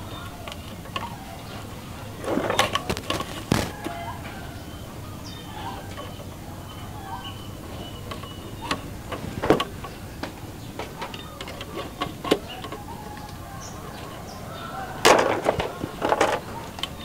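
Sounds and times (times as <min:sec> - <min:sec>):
faint bird chirps: 0:00.0 - 0:15.0
sharp taps and knocks: 0:02.6 - 0:03.9.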